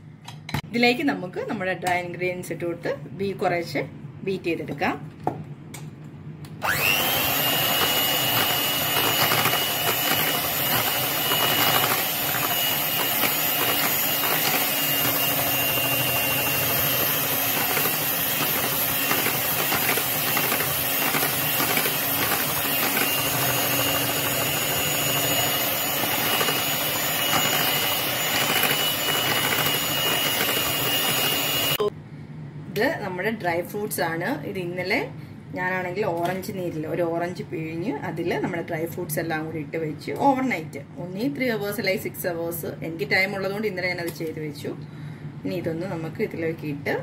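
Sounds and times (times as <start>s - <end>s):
electric hand mixer whining: 6.6s - 31.9s.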